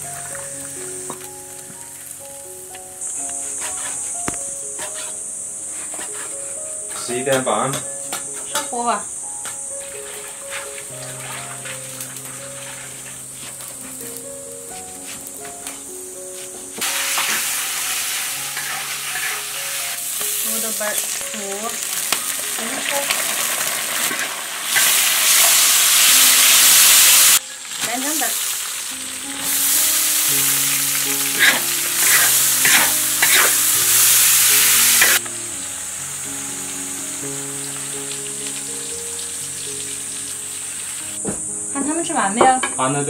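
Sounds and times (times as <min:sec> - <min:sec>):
food sizzling in a wok: 0:00.0 - 0:43.0
spatula scraping a wok: 0:03.4 - 0:08.7, 0:09.8 - 0:14.0, 0:16.8 - 0:21.1, 0:30.5 - 0:35.2.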